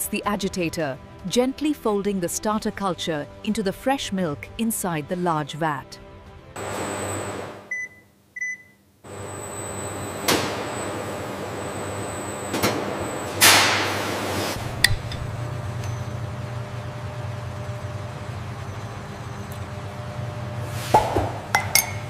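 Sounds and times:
short electronic beeps: 0:07.7 - 0:08.8
processing machinery humming: 0:09.1 - 0:22.0.

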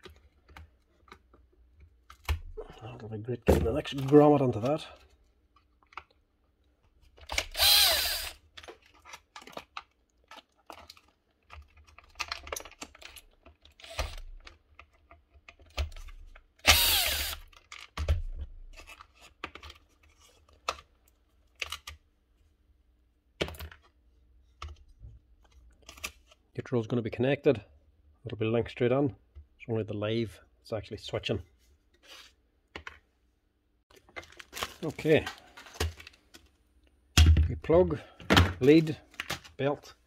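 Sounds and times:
small clicks and rustles of wiring: 0:03.8 - 0:07.5, 0:08.4 - 0:16.6, 0:17.5 - 0:18.1, 0:18.7 - 0:22.1, 0:33.9 - 0:37.0
cordless drill motor whine: 0:07.5 - 0:08.4, 0:16.6 - 0:17.4.

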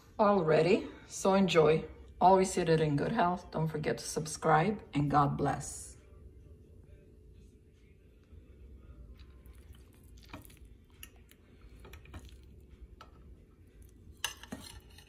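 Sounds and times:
low steady hum: 0:00.0 - 0:15.0
fork clinking on ceramic plate: 0:14.2 - 0:15.0.

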